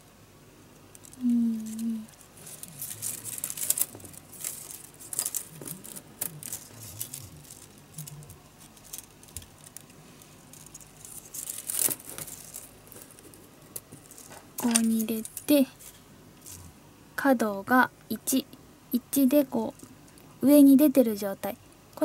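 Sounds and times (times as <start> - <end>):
bamboo strips clicking and scraping: 0.7 - 16.7.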